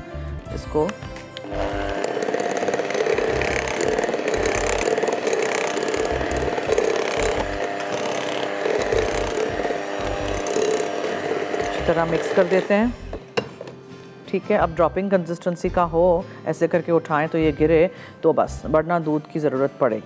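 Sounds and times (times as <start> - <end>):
electric mixer running: 1.4 - 13.3.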